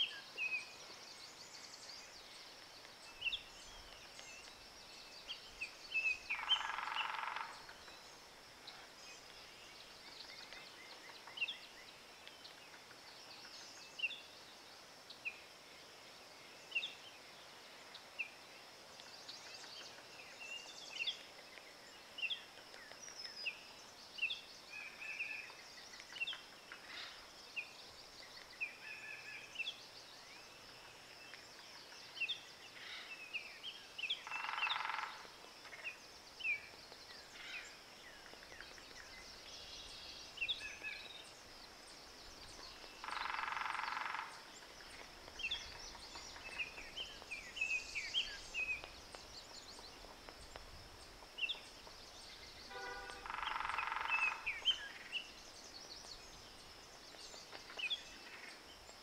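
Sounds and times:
steady high hiss: 0.0s - 59.0s
loud long bird call: 52.6s - 54.5s.

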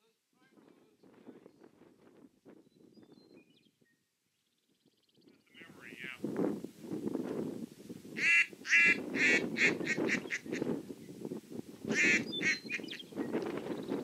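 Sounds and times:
wind rumbling on microphone: 0.4s - 4.0s, 4.6s - 14.0s
duck call quacks: 8.2s - 10.6s, 11.9s - 12.7s.

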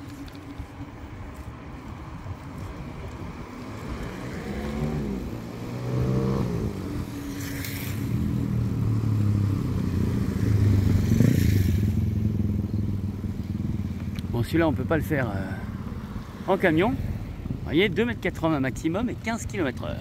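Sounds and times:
van engine: 2.4s - 20.0s
motorcycle engine: 3.6s - 17.5s.

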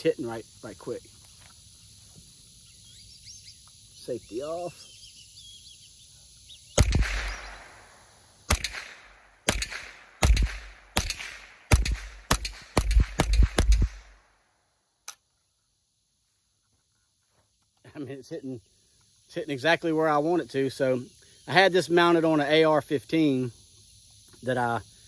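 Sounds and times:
rifle shots: 6.8s - 14.2s.

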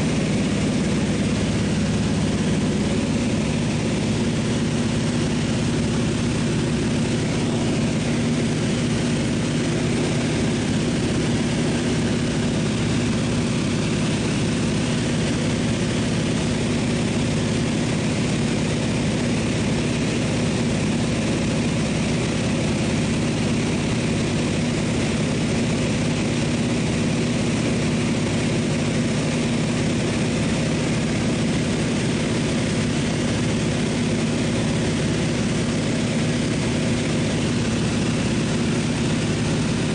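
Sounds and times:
airflow rushing: 0.0s - 17.8s
plane engine droning: 0.0s - 39.9s.

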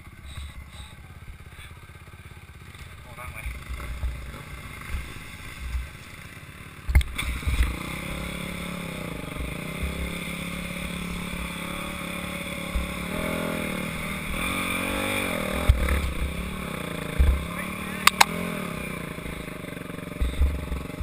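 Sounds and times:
dirt bike engine: 0.0s - 21.0s
sharp clack: 18.0s - 18.4s.

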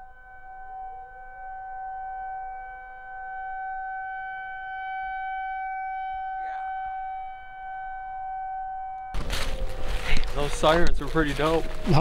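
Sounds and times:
warning siren tone: 0.0s - 12.0s.

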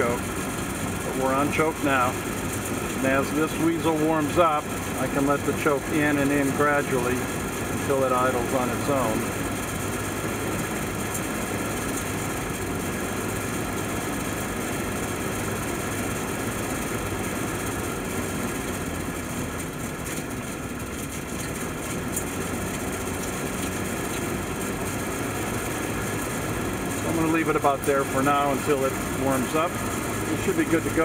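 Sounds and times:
engine idling: 0.0s - 31.0s.

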